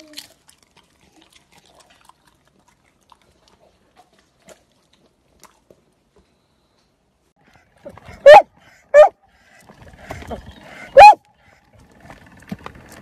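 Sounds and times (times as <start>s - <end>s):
dog chewing and licking: 0.0s - 5.7s.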